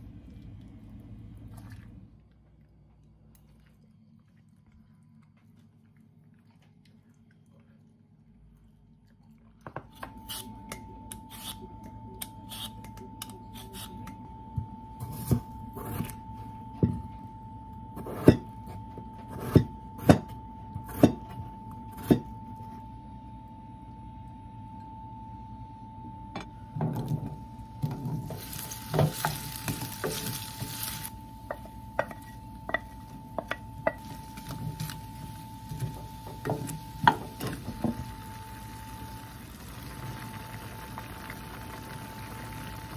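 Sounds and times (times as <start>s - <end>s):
faint high hum: 0.0s - 42.9s
potatoes sizzling in hot oil: 28.2s - 31.2s, 34.0s - 42.9s.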